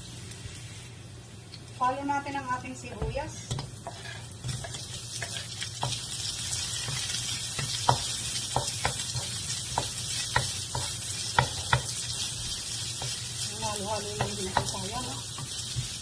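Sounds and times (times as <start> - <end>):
onions sizzling in a pan: 0.0 - 16.0
wooden spatula scraping a pan: 3.8 - 6.0.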